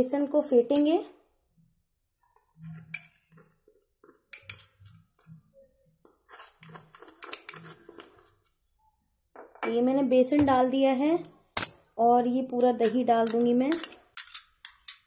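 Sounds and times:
metal spoon scraping glass bowl: 2.3 - 8.5.

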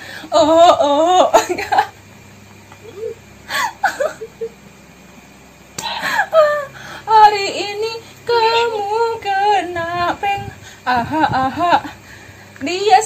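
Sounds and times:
woman laughing: 0.4 - 2.0, 2.7 - 4.6, 5.8 - 6.8, 10.9 - 12.0.

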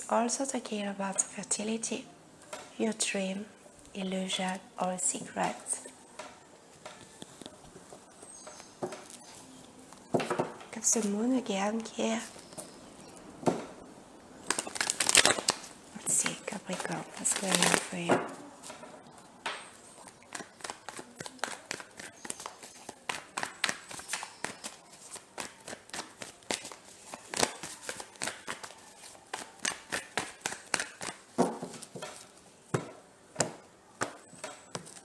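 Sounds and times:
cards being shuffled: 14.4 - 18.8, 19.9 - 32.4.

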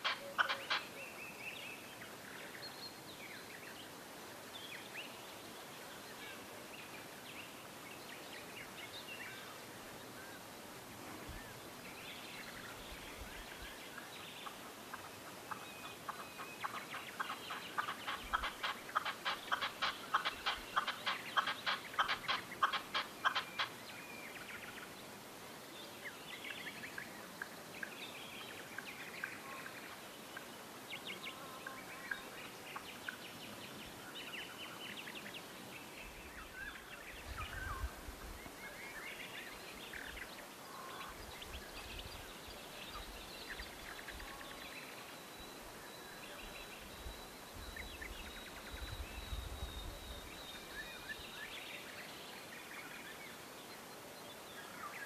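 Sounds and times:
partridge clucking call: 0.0 - 1.0, 14.4 - 23.8
short bird calls: 0.0 - 1.1.

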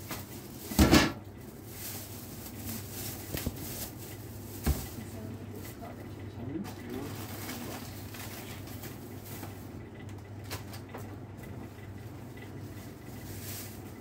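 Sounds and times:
plastic bags rustling: 0.0 - 5.4, 6.6 - 9.8, 12.5 - 14.0
steady low hum: 0.0 - 14.0.

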